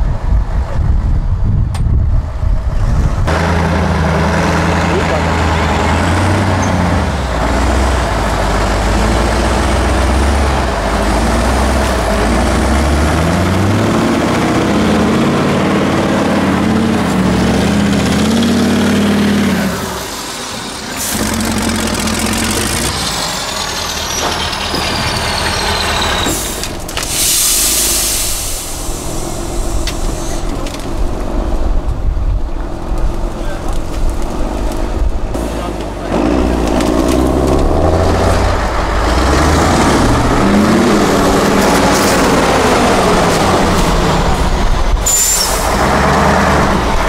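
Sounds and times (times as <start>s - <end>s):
diesel truck engine revving: 0.1s - 47.0s
loud hiss of air: 26.2s - 30.5s.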